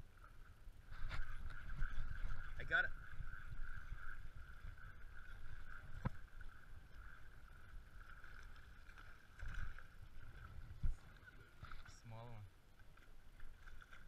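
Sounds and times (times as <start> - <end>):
wind buffeting microphone: 1.0 - 8.1.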